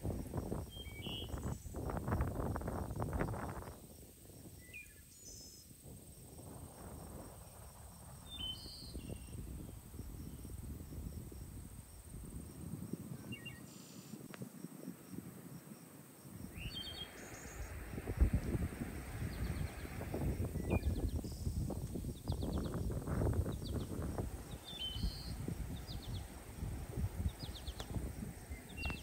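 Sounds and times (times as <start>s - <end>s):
wind rumbling over microphone: 0.0s - 29.0s
faint high ticks: 14.2s - 14.5s, 27.5s - 28.1s.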